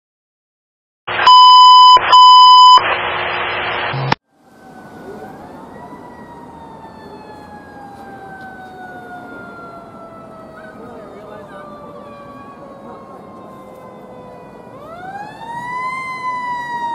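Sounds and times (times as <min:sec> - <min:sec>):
siren wail: 0:04.3 - 0:16.9.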